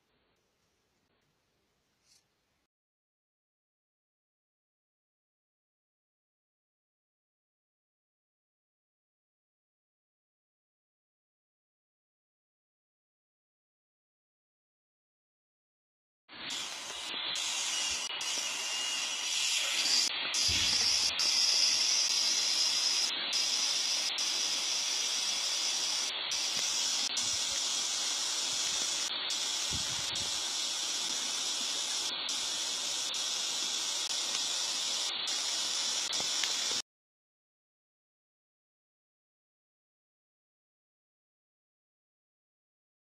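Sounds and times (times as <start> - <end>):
steady hiss: 16.3 - 36.8.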